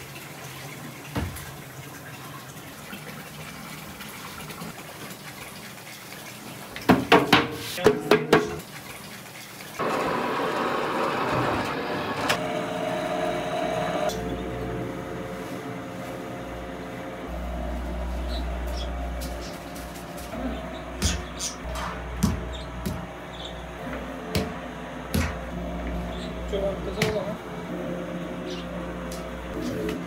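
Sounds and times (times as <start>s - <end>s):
dough rounding machine running: 9.8s - 30.0s
sharp slaps or knocks: 24.4s - 25.4s.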